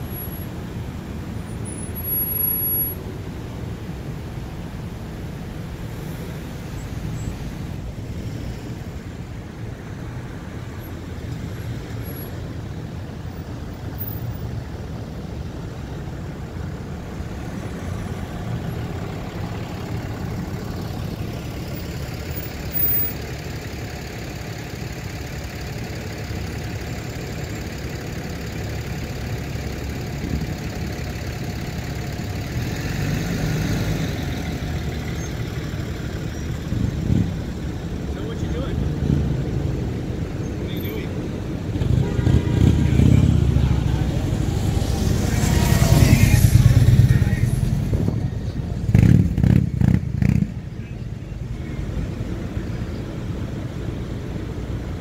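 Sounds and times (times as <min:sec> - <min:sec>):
road traffic passing: 0:00.0 - 0:55.0
wind rumble on microphone: 0:44.6 - 0:49.3.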